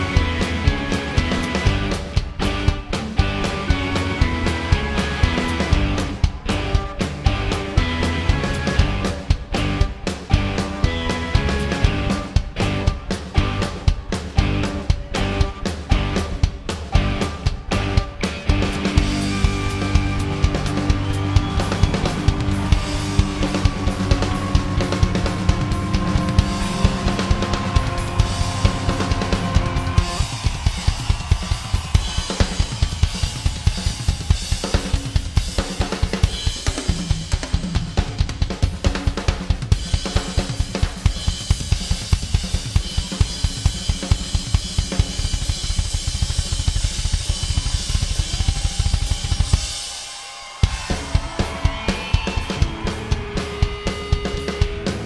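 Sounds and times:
drum kit beat: 0:00.0 - 0:55.0
live rock band playing: 0:00.0 - 0:55.0
sustained guitar chords: 0:17.0 - 0:30.4.

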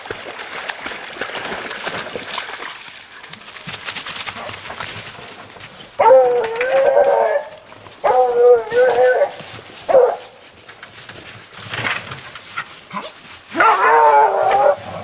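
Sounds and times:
dogs splashing through water: 0:00.0 - 0:15.0
dog baying loudly: 0:06.0 - 0:10.4, 0:12.9 - 0:15.0.

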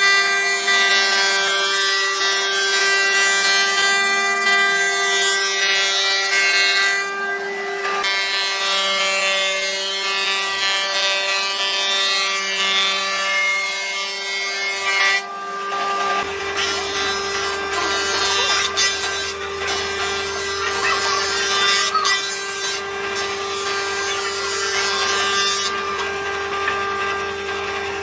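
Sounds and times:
power tool motor whine: 0:00.0 - 0:28.0
wood grinding and rubbing: 0:16.1 - 0:26.2.

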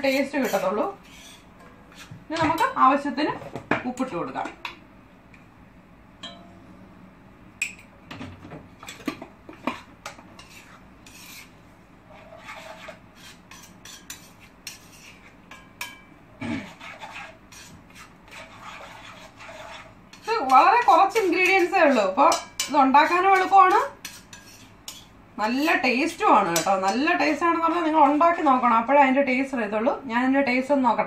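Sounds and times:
spoon scraping and clinking pot: 0:00.0 - 0:02.8, 0:08.8 - 0:11.5, 0:12.1 - 0:28.7.

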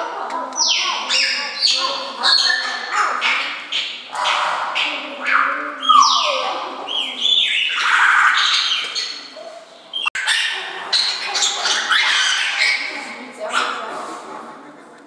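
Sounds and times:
birds squawking: 0:00.6 - 0:13.9.

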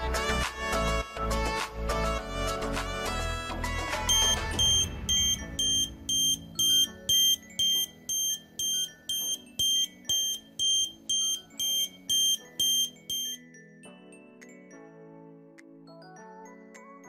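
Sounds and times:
high-pitched alarm beeps: 0:04.1 - 0:13.4.

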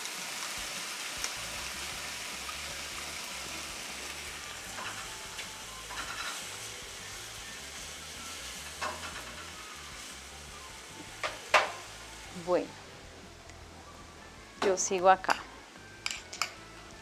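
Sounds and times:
vegetables sizzling in a frying pan: 0:00.0 - 0:13.4
spatula scraping a pan: 0:05.9 - 0:06.6.

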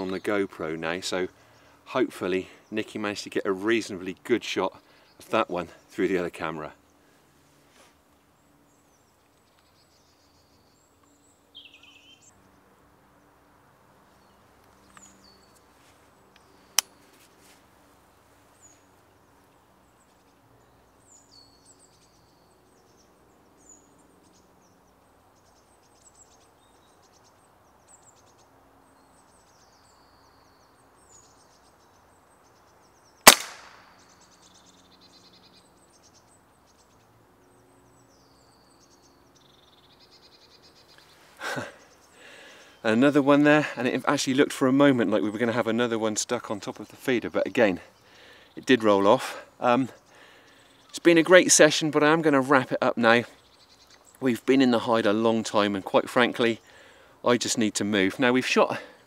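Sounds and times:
small birds chirping: 0:00.0 - 0:59.0
air rifle shot: 0:33.2 - 0:34.0
sharp click: 0:33.3 - 0:33.9.

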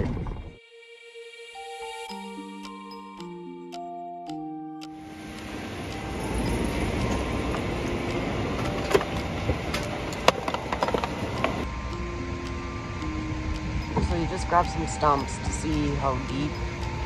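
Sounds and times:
truck engine and tyre rumble: 0:05.2 - 0:11.9.

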